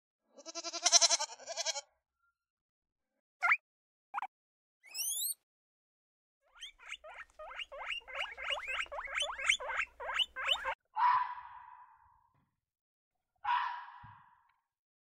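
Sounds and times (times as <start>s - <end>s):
small rodent squeaking: 4.2s - 5.4s, 6.5s - 10.8s.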